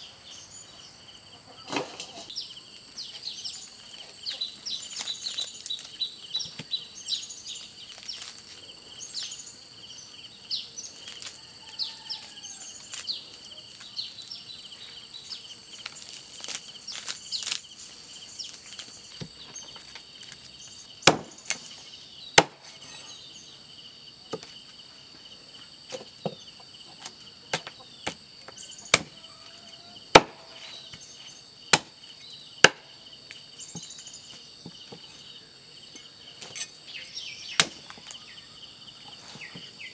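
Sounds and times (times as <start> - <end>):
insect chirring: 2.3 - 39.9
cleaver chopping on wooden block: 21.0 - 21.6, 22.4 - 22.7, 28.9 - 29.2, 30.1 - 30.6, 31.7 - 31.9, 32.6 - 32.9, 37.6 - 37.9.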